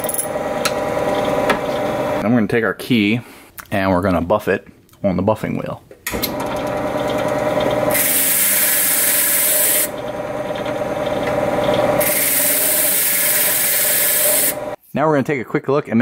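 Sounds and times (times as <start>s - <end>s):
key-cutting machine motor running: 6.2s - 14.8s
key hissing against buffing wheel: 7.6s - 10.2s, 11.6s - 14.8s.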